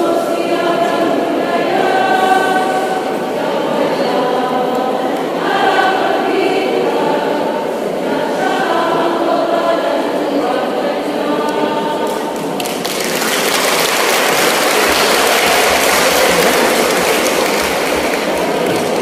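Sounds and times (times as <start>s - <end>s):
women's choir singing: 0.0s - 19.0s.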